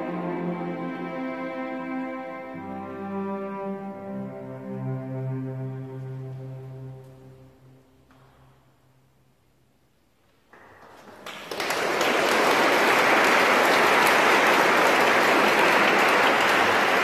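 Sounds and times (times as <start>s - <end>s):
audience applause: 10.6s - 17.0s.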